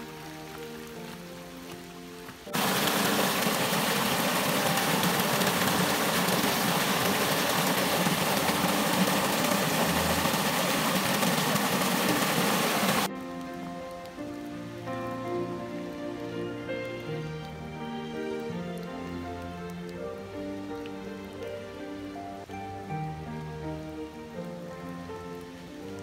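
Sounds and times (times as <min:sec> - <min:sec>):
water rushing down rocky gully: 0:00.0 - 0:26.0.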